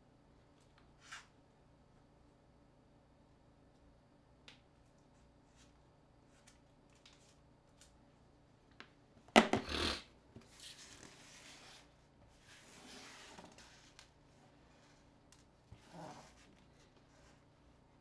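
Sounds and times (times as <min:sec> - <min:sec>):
phone scraping on table: 0:09.4 - 0:10.0.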